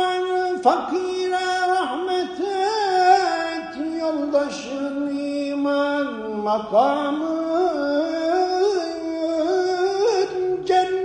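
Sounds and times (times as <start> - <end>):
man singing devotional chant: 0.0 - 11.0.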